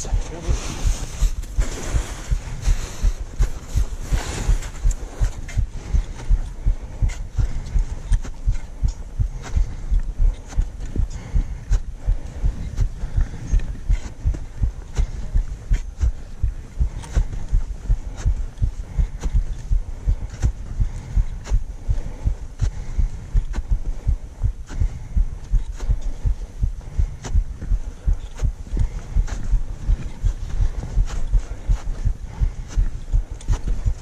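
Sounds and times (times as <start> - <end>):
boots striking snow: 0.2 - 6.3.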